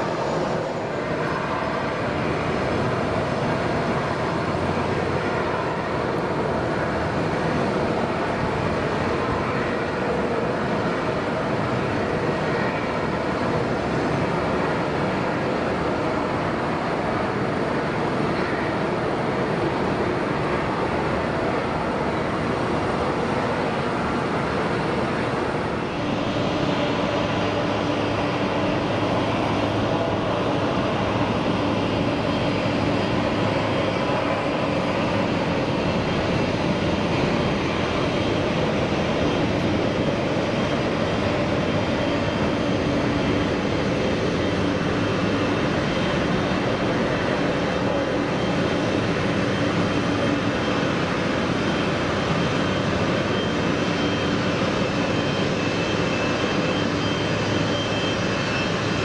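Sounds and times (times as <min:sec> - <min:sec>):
jet engines running: 0:00.0 - 0:59.0.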